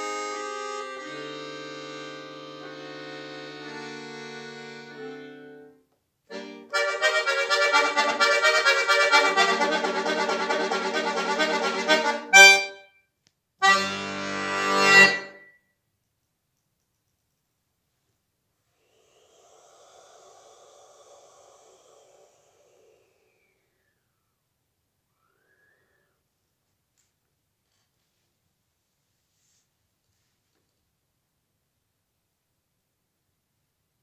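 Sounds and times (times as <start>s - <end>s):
accordion playing: 0.0s - 12.9s, 13.6s - 15.5s.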